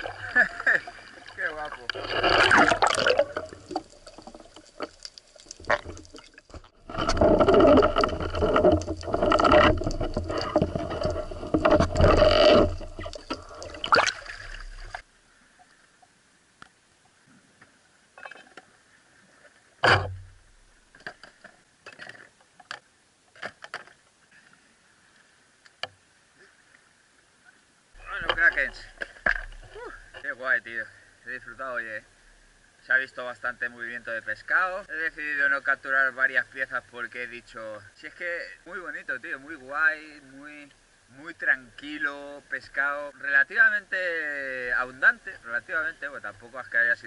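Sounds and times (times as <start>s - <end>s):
water sloshing and splashing: 0.0s - 15.1s, 28.0s - 30.2s
louder thump: 19.8s - 20.4s.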